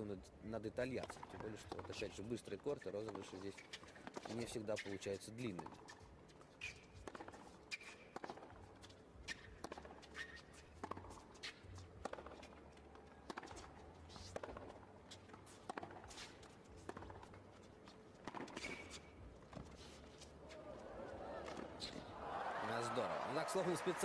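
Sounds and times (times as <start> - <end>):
players' footsteps: 0.9 - 24.0
tennis ball bouncing: 1.0 - 20.8, 21.4 - 22.0
racket hitting tennis ball: 6.6 - 12.6, 13.2 - 17.3, 18.2 - 19.8.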